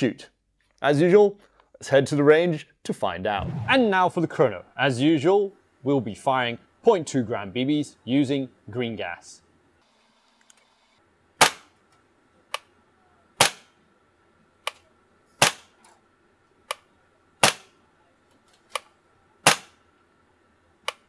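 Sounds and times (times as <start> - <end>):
airsoft gun shots cracking: 13.4 - 13.7, 19.5 - 19.8.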